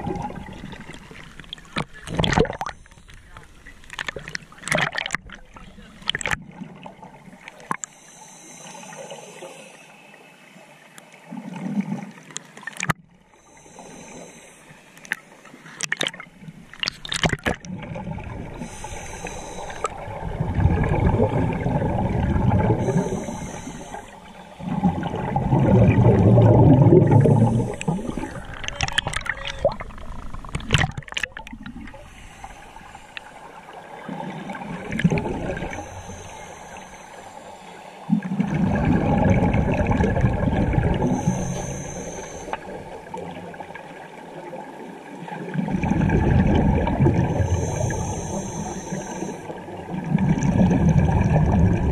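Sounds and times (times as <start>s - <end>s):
exhaled bubbles gushing: 0.0s - 2.8s, 3.9s - 7.8s, 15.8s - 32.2s, 32.9s - 37.3s, 38.1s - 51.9s
diver breathing through regulator: 7.8s - 10.2s, 13.4s - 15.5s, 18.4s - 20.2s, 20.8s - 29.0s, 31.9s - 43.2s, 46.8s - 49.7s
water sloshing: 11.4s - 44.2s.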